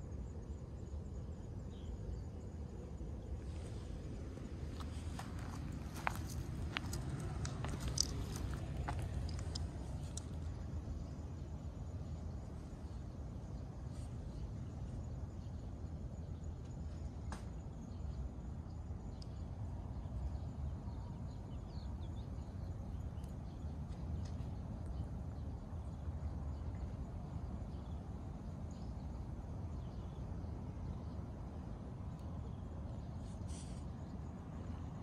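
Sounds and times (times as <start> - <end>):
steady low rumble: 0.0 - 35.0
small birds chirping: 3.5 - 18.1.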